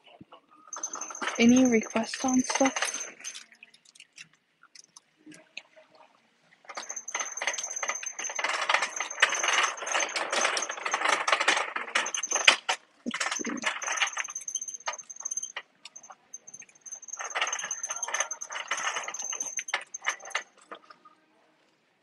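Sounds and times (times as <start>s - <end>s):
hangers clicking on metal rack: 0.8s - 3.5s, 6.7s - 20.6s.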